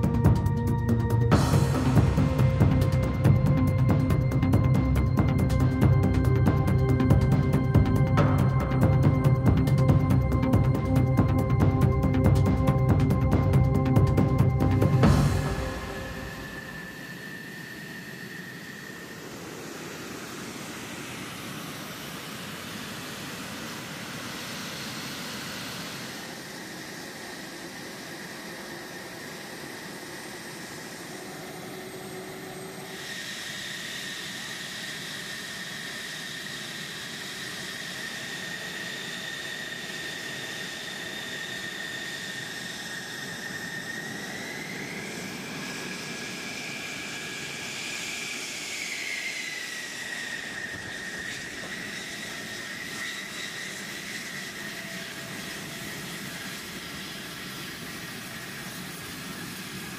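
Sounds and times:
jet engine whine and roar: 0.0s - 59.9s.

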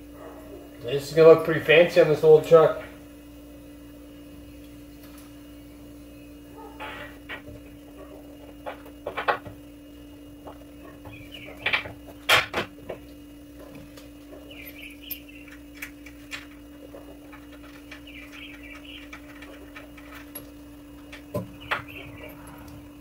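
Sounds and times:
steady hum: 0.0s - 23.0s
bird-like chirps: 11.0s - 11.7s, 14.4s - 15.7s, 18.0s - 19.2s, 21.5s - 22.5s.

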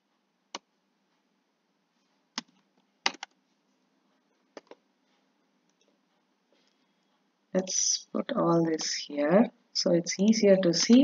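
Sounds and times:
computer keyboard keystrokes: 2.4s - 3.4s, 4.6s - 4.8s.

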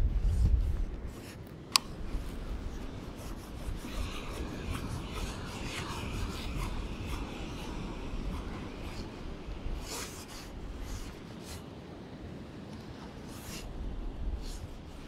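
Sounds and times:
wind rumbling on microphone: 0.0s - 15.0s
scratchy rubbing and rustling: 0.2s - 11.7s.

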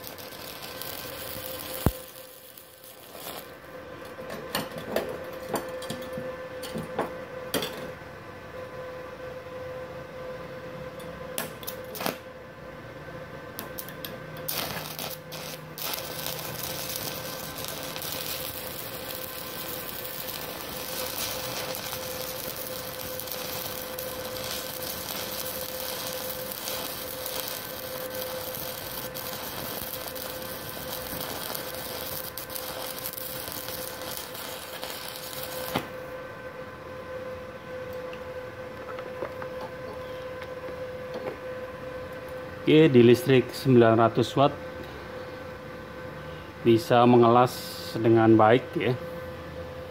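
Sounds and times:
welding arc crackling: 0.0s - 3.7s, 11.4s - 12.2s, 13.6s - 36.1s
steady hum: 0.0s - 49.9s.

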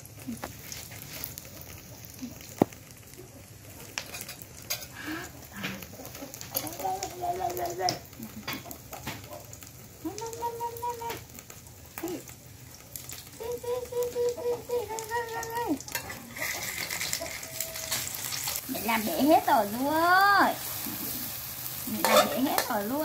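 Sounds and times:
food sizzling in a wok: 0.0s - 23.0s
metal spatula scraping wok: 4.0s - 5.0s, 15.9s - 19.7s, 20.6s - 23.0s.

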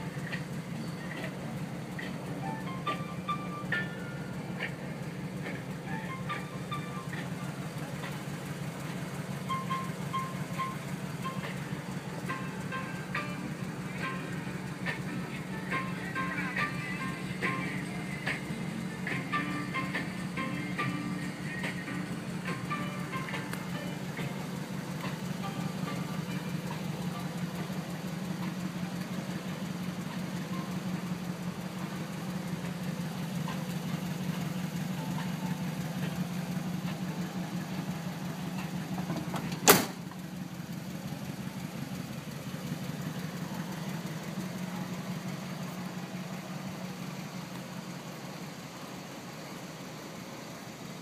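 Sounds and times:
car engine idling: 0.0s - 51.0s
car door slamming: 39.0s - 40.2s.

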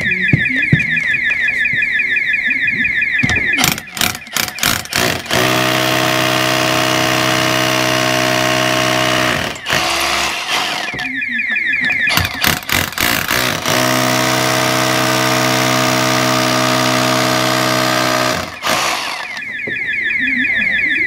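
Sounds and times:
alarm sweeping tone: 0.0s - 21.0s
rotary hammer drilling into brick: 3.6s - 11.0s, 12.1s - 19.4s.

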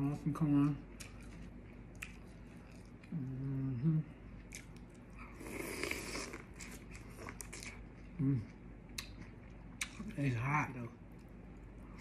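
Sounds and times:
person humming: 3.1s - 4.2s.

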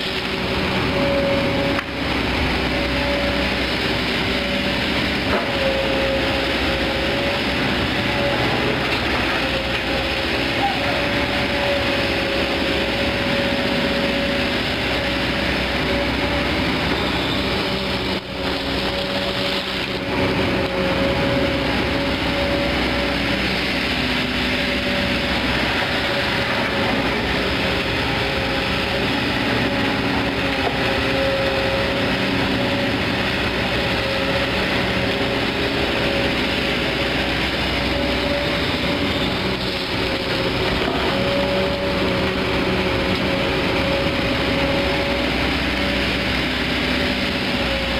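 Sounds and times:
excavator diesel engine running: 0.0s - 47.9s.

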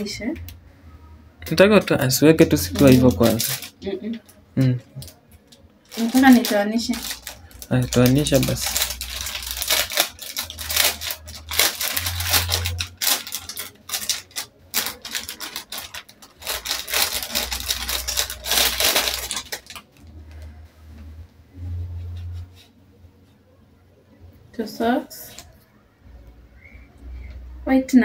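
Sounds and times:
plastic packet crinkling: 1.5s - 4.3s, 4.9s - 20.2s.

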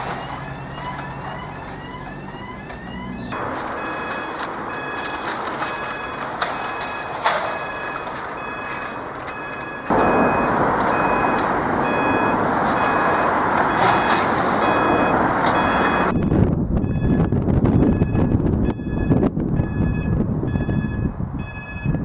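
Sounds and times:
level crossing alarm beeps: 0.0s - 22.0s
loud rushing noise: 9.9s - 16.6s.

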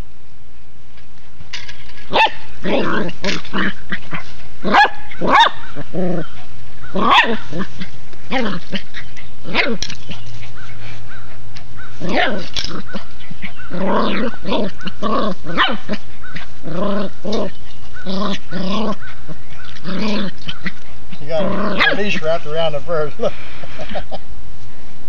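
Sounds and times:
puppy barking: 2.1s - 2.4s, 4.7s - 5.8s, 6.9s - 7.4s, 12.0s - 16.5s, 21.7s - 22.2s.

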